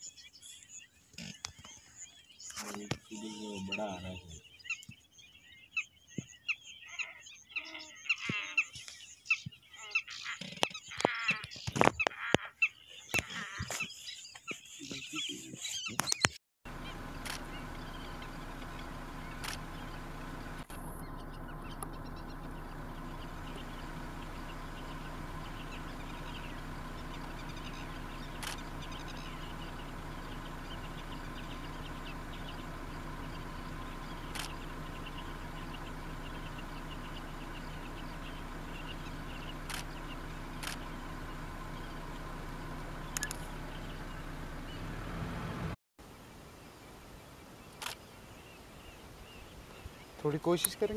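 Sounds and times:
faint clicks: 19.3s - 19.6s, 27.1s - 29.4s, 34.3s - 34.7s, 39.6s - 40.9s.

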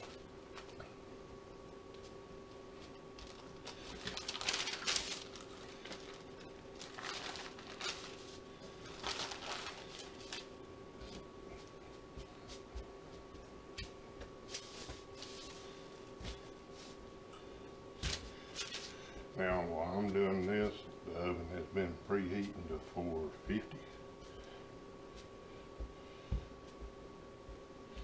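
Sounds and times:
faint steady hum: 0.0s - 28.0s
parchment paper crinkling: 3.2s - 10.5s.

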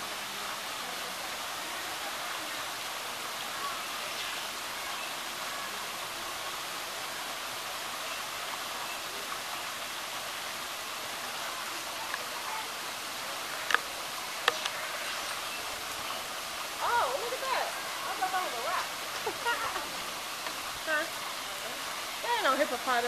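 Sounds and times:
shower spray splashing into pool: 0.0s - 23.0s
sharp clicks: 13.6s - 14.8s.

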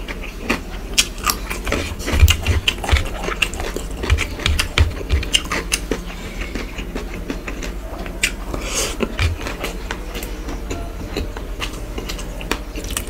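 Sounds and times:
wet chewing: 0.0s - 13.0s.

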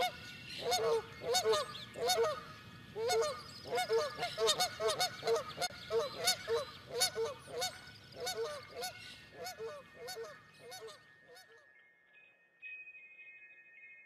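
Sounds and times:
geese honking: 0.0s - 11.0s.

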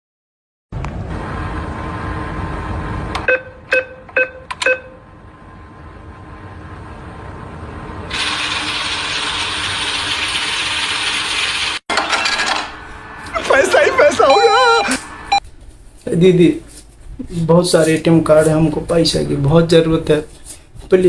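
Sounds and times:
noisy whirr: 0.8s - 21.0s
short electronic beeps: 3.3s - 5.0s, 14.0s - 15.4s.

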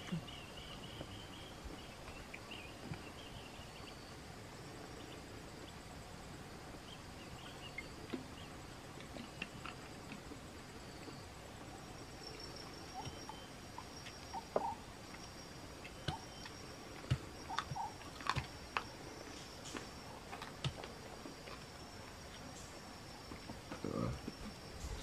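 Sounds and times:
insect drone: 0.0s - 25.0s
chewing and lip-smacking: 17.1s - 19.0s.

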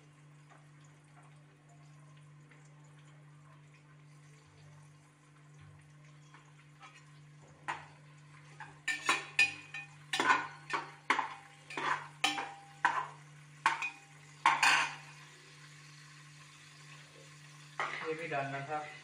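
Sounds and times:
onions frying in oil: 0.0s - 19.0s
metal spoon scraping a pot: 8.9s - 15.0s.

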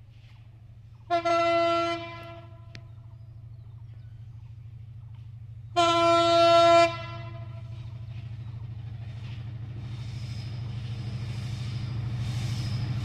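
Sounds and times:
locomotive rumbling: 0.0s - 13.0s
locomotive air horn blasts: 1.1s - 2.8s, 5.8s - 7.9s.

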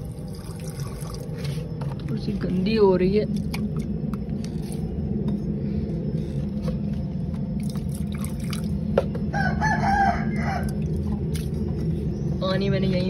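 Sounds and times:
steady low hum: 0.0s - 13.0s
rooster crowing: 9.2s - 10.9s.

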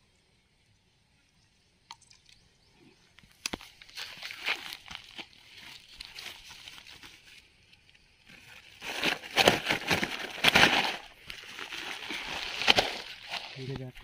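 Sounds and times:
plastic sack rustling and crinkling: 3.6s - 7.4s, 8.3s - 14.0s.

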